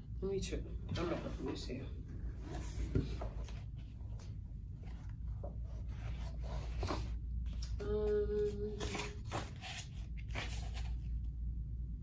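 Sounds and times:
woman humming: 7.8 - 8.8
pages rustling: 8.7 - 11.3.

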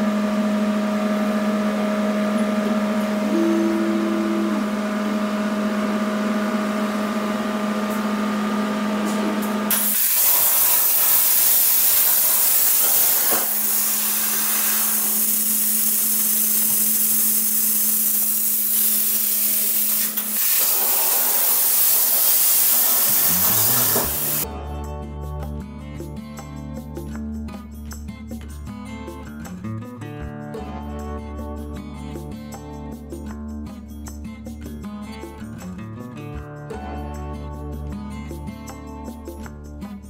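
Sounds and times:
steady hum: 2.6 - 7.4
plasma cutter hissing: 9.7 - 24.4.

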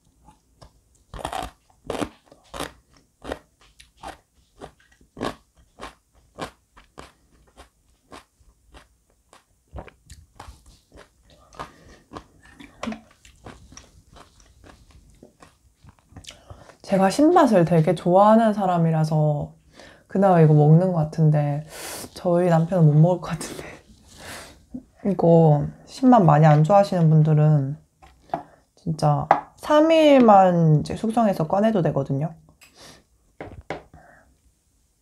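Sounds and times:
crunchy chewing of sauerkraut: 0.2 - 16.8.

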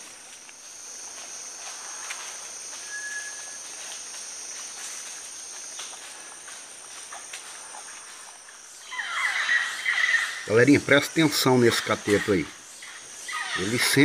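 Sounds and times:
rustling in dry leaves: 0.0 - 10.7
insect chorus: 0.0 - 14.0.

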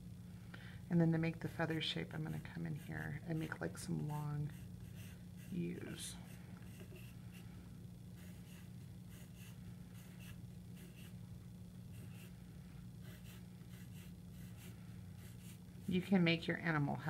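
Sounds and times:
faint low hum: 0.0 - 17.0
pencil scratching on paper: 2.2 - 7.4, 8.2 - 11.2, 11.9 - 12.3, 13.0 - 15.6.

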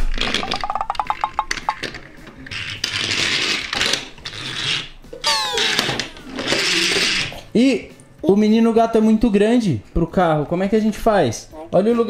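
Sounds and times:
toy car wheels rolling on glass: 0.0 - 7.4.

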